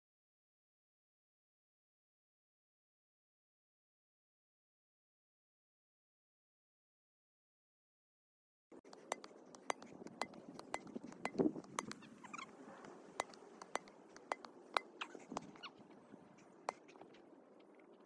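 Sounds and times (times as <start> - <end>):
faint outdoor background noise: 8.7 - 18.0
sharp clicks and ticks: 8.9 - 12.0, 12.8 - 15.6.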